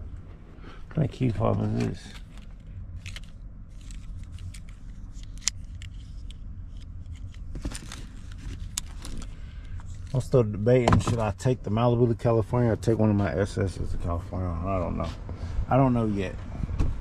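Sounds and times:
low hum: 0.0 - 17.0
car key fob clicks and rattles: 1.7 - 10.1.

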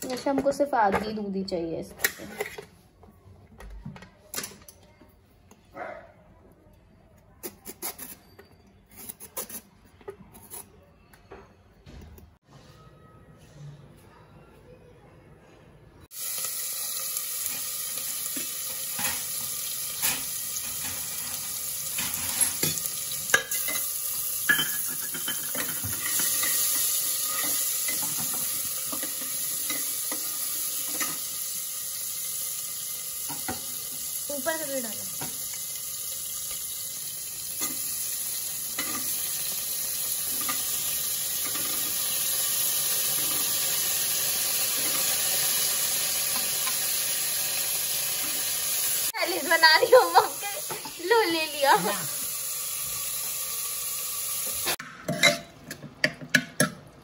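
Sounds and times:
metal spoon scraping a pan: 2.0 - 2.8, 18.3 - 31.3
vegetables sizzling in hot oil: 16.1 - 54.8.

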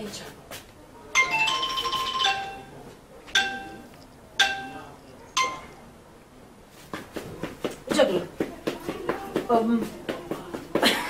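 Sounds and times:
bell-like ringing notes: 1.2 - 2.8, 3.4 - 5.8.

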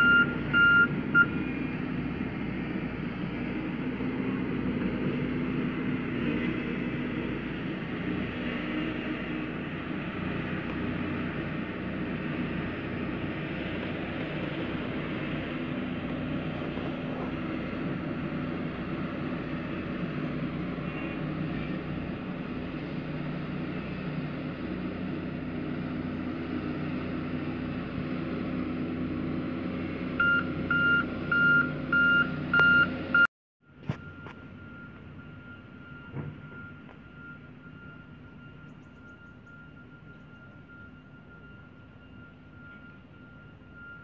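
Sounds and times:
reversing alarm beeps: 0.0 - 1.4, 30.2 - 44.0
road roller diesel engine running: 0.0 - 44.0.

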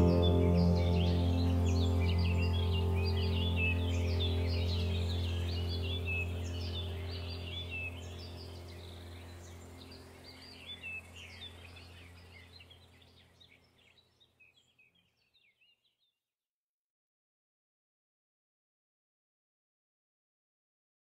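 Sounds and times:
steady low hum: 0.0 - 13.2
birds chirping: 0.0 - 15.9.

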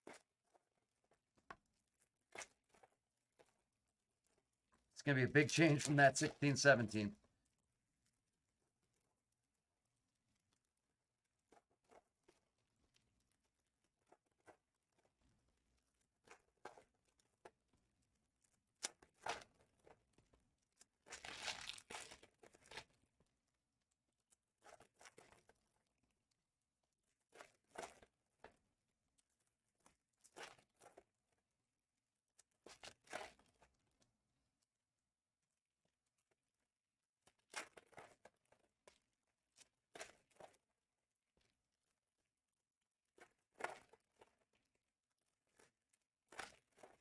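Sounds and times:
foil wrappers crinkling and tearing: 21.2 - 22.8.

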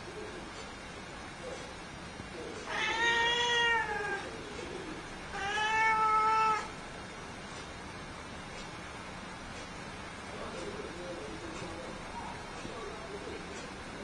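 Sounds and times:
cat meowing: 2.6 - 4.3, 5.3 - 6.8.

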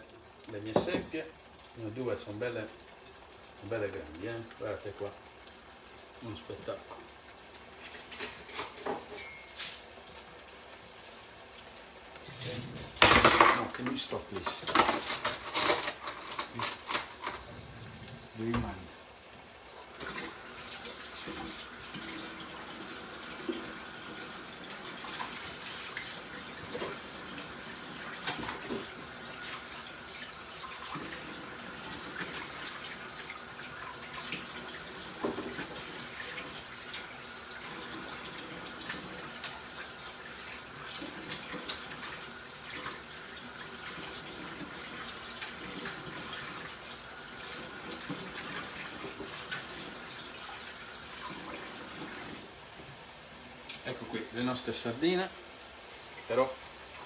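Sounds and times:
tap running into a sink: 34.3 - 36.5.

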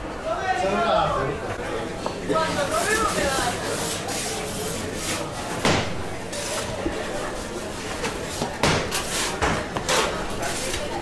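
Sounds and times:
kitchen knocks and clatters: 7.9 - 11.0.

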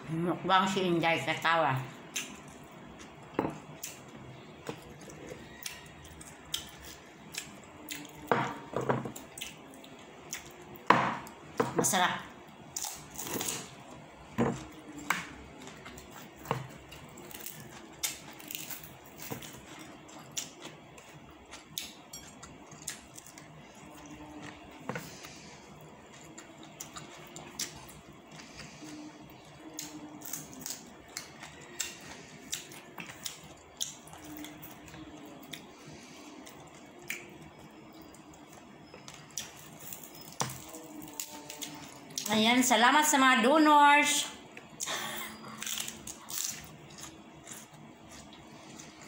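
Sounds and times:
crisp lettuce crunching: 17.0 - 20.5.

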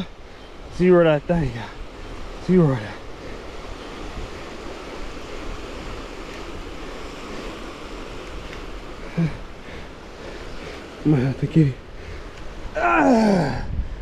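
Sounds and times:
lake water lapping at shore: 0.0 - 13.4
wind: 0.0 - 14.0
wind rumbling on microphone: 0.0 - 14.0
person grunting: 9.1 - 9.4, 12.8 - 13.8.

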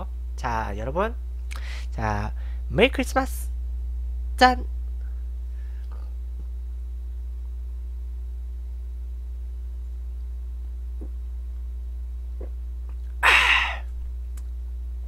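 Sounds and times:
low electrical hum: 0.0 - 15.0
man swallowing: 11.0 - 11.2, 12.3 - 14.2
breathy exhale into microphone: 13.2 - 13.9.

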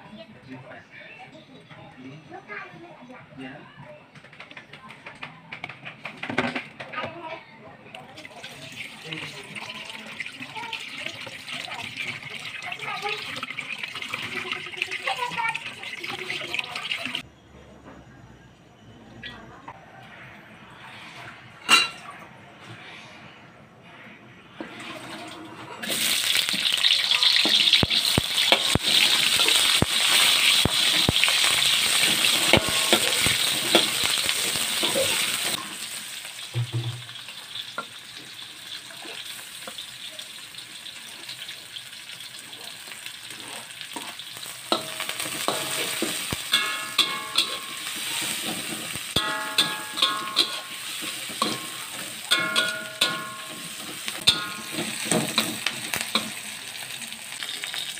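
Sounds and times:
onion sizzling in hot oil: 8.2 - 17.2, 25.8 - 57.9
metal spatula scraping a wok: 24.0 - 36.0, 43.3 - 56.9.

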